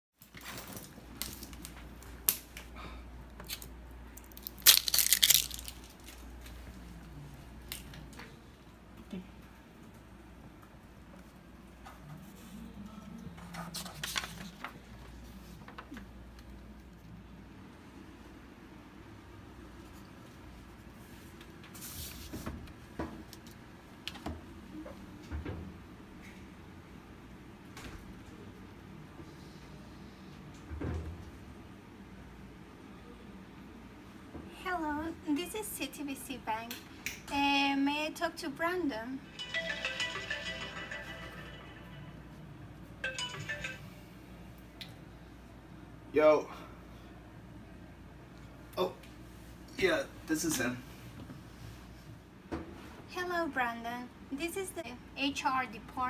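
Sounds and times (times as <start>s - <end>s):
plastic bottle crinkling: 4.2s - 6.3s
paper rustling: 13.4s - 15.0s.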